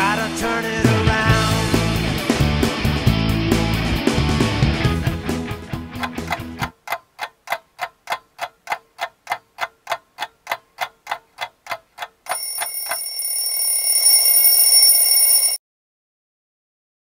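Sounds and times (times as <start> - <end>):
clock ticking: 5.9 - 13.6
alarm clock bell ringing: 12.3 - 15.6.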